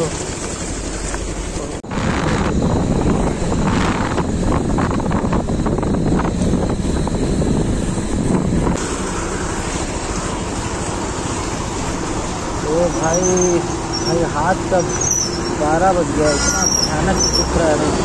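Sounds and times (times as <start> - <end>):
motorcycle engine: 0.0 - 18.0
road noise: 0.0 - 18.0
wind rushing over microphone: 1.8 - 9.0.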